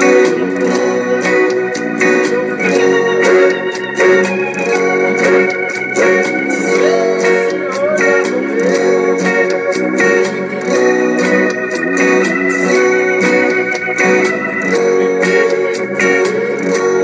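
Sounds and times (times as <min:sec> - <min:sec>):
man singing: 0:00.0 - 0:04.3, 0:05.0 - 0:11.3, 0:14.7 - 0:17.0
acoustic guitar strumming: 0:00.0 - 0:17.0.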